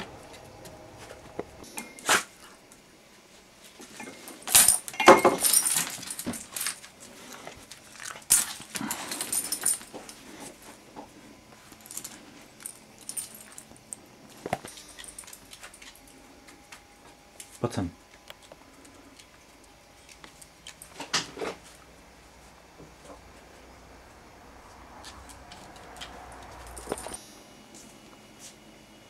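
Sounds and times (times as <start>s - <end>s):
metal clinks: 3.9s - 6.9s, 8.0s - 10.2s, 11.7s - 16.2s, 25.2s - 27.2s.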